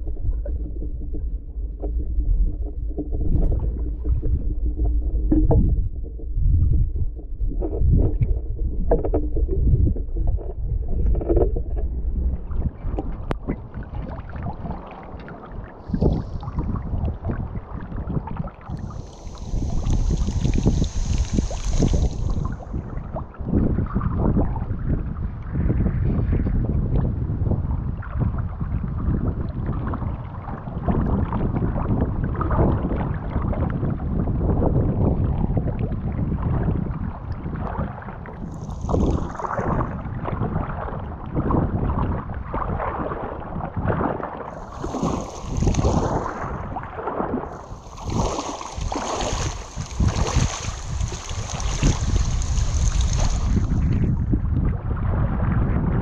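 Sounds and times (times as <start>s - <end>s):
wind buffeting microphone: 0.0s - 56.0s
water sloshing around waders: 12.8s - 23.4s, 38.4s - 40.3s, 44.5s - 54.1s.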